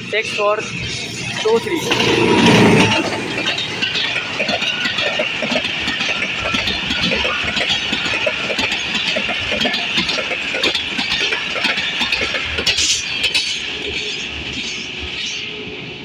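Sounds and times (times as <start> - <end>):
train wheels clattering on track: 0.7 - 16.0.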